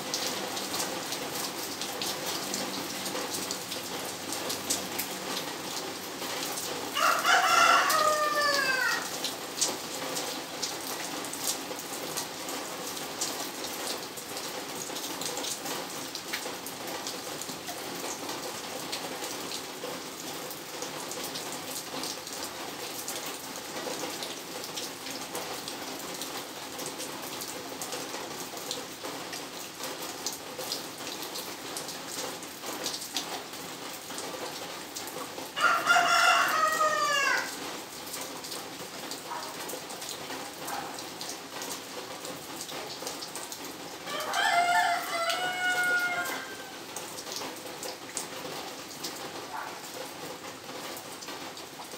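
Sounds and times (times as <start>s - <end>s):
rain on paving and leaves: 0.0s - 51.9s
rooster crowing: 6.9s - 9.2s, 35.6s - 37.6s, 44.0s - 46.8s.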